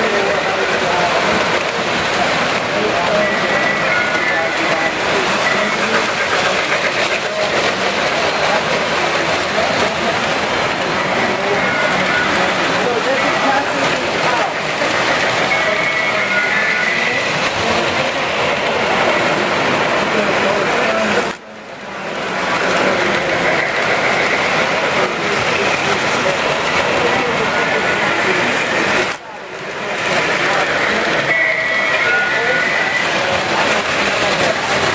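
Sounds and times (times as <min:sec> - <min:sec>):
crowd chatter: 0:00.0 - 0:34.9
toy trains whirring: 0:00.0 - 0:34.9.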